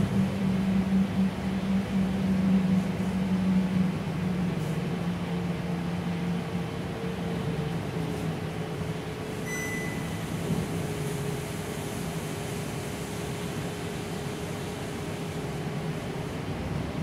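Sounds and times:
bus drivetrain hum: 0.0 - 17.0
short high electronic beep: 9.4 - 10.2.

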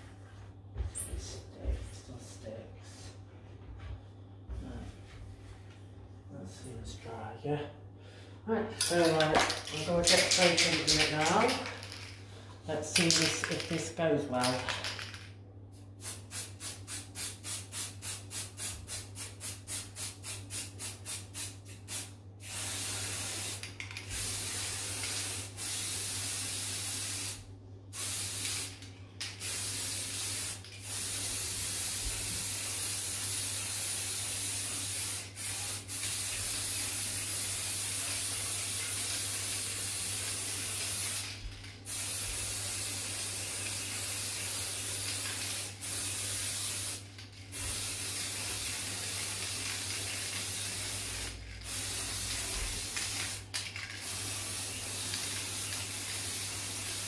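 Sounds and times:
spray paint can hissing: 16.0 - 57.0.

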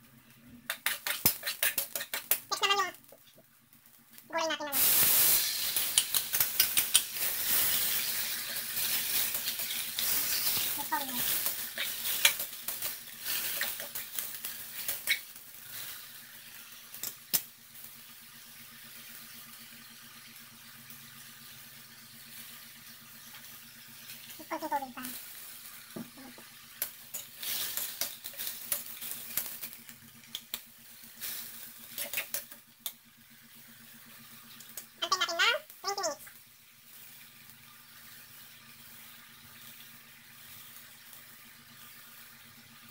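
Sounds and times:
cabbage sizzling in a wok: 0.0 - 42.9
metal spatula scraping a pan: 7.2 - 12.5.

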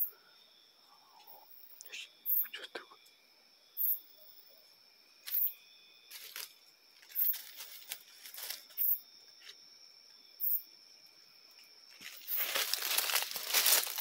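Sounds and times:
night insects trilling: 0.0 - 14.0
dry leaves crunching underfoot: 6.1 - 9.6, 11.9 - 14.0.

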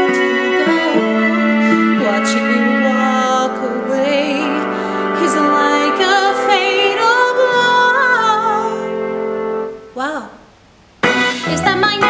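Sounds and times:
woman singing a slow ballad: 0.0 - 9.0
sustained instrumental accompaniment: 0.0 - 9.8, 11.0 - 12.0.

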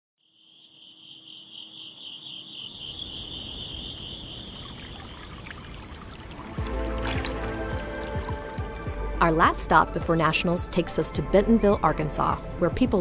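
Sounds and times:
insects trilling: 0.2 - 6.6.

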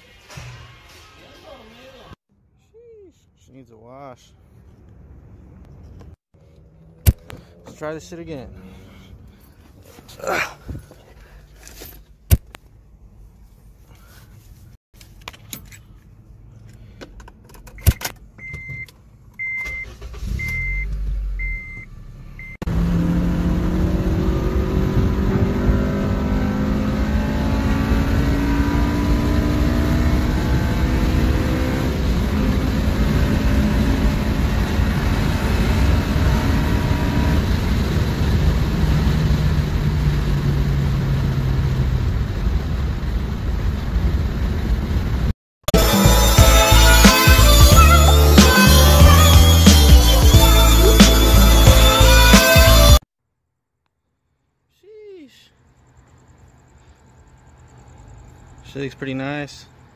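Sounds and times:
road and wind noise: 3.9 - 45.4, 55.6 - 59.9
car warning chime beeping: 17.8 - 22.6
car engine at high revs: 19.9 - 52.9.

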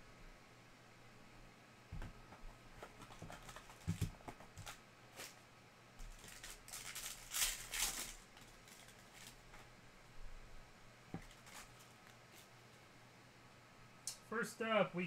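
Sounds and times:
foil wrapper crinkling and tearing: 6.0 - 9.6, 11.2 - 12.2.

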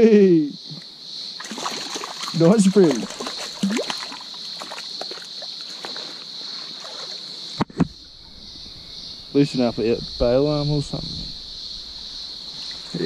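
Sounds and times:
high-pitched insect drone: 0.0 - 13.0
fish splashing in water: 1.4 - 6.2.

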